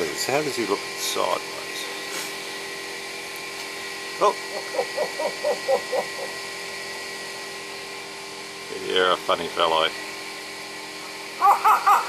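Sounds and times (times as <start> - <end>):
steady electric hum: 0.0 - 12.0
myna bird calling: 4.5 - 6.4, 11.4 - 12.0.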